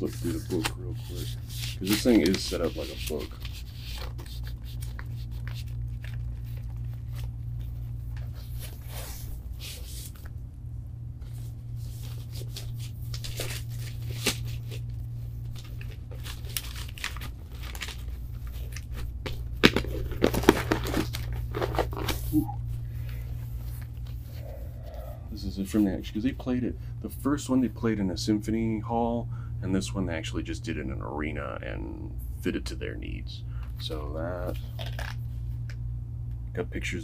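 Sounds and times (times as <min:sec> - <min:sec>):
book pages rustling: 0:00.0 - 0:10.4, 0:11.2 - 0:22.3
steady low hum: 0:00.0 - 0:37.0.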